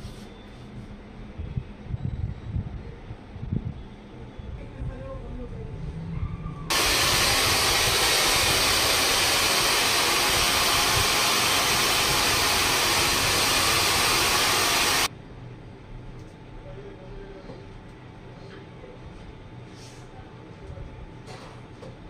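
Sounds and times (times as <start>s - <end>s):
hair dryer blowing: 6.7s - 15.1s.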